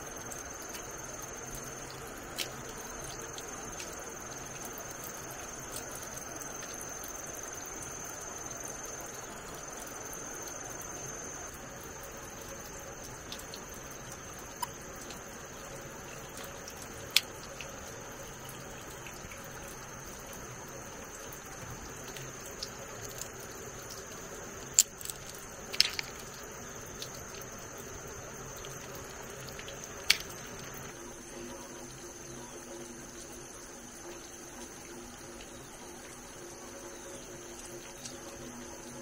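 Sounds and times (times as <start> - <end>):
water dripping and splashing: 0.0 - 39.0
crabs clicking on plastic: 0.2 - 7.6, 12.4 - 31.0.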